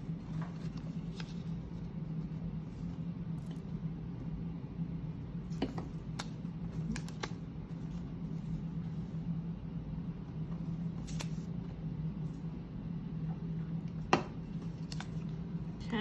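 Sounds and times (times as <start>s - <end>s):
steady low hum: 0.0s - 16.0s
paper clicks and taps: 14.1s - 15.2s.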